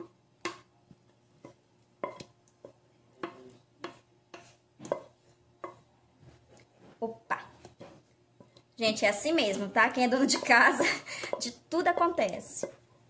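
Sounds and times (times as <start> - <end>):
spatula scraping a saucepan: 1.4 - 8.6.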